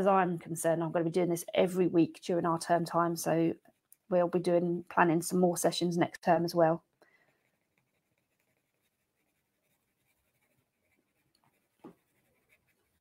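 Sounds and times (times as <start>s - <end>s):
pencil scratching on paper: 7.3s - 13.0s.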